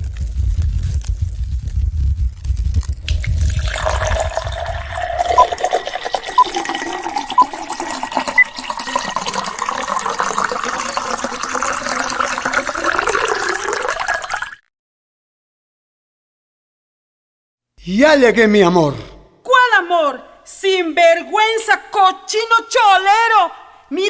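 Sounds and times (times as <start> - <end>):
low rumble: 0.0 - 5.4
liquor pouring over ice: 3.0 - 14.6.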